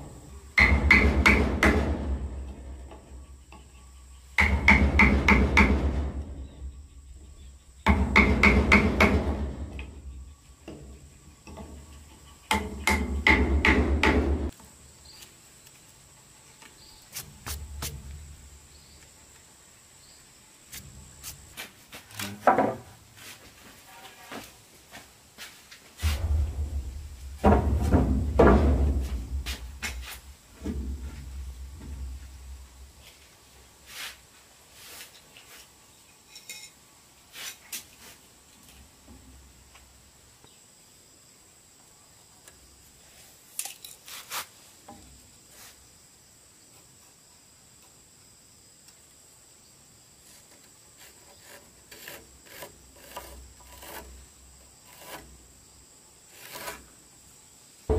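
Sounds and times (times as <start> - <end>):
sharp wooden knock: 0.6 - 2.2, 4.4 - 6.3, 7.9 - 9.7, 12.5 - 14.5
brushing sawdust off wood: 17.0 - 18.2, 28.8 - 30.3, 33.8 - 35.7, 44.0 - 44.8, 50.2 - 55.5, 56.3 - 57.0
fingers scraping wood chips: 50.3 - 54.2, 54.8 - 55.4, 56.3 - 56.9
pencil drawn across wood: 51.0 - 54.2, 54.8 - 55.3, 56.3 - 56.8.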